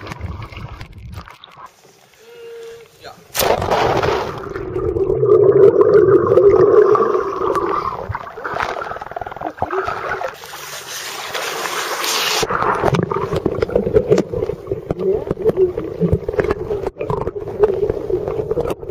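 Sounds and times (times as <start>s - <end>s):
underwater bubbles gurgling: 0.0s - 1.7s, 4.0s - 10.5s, 12.2s - 18.9s
splashing and dripping water: 0.0s - 2.2s, 3.4s - 18.9s
underwater clicks: 12.4s - 18.9s.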